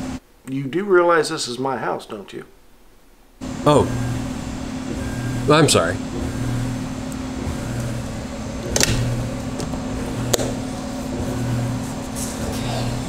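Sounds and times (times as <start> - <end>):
pulsing low hum: 3.4 - 13.0.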